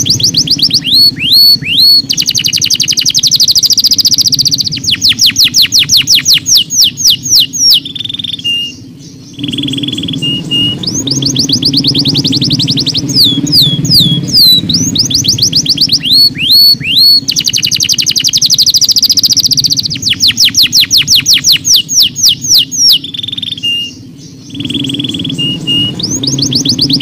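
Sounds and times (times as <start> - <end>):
canary singing: 0.0 - 27.0.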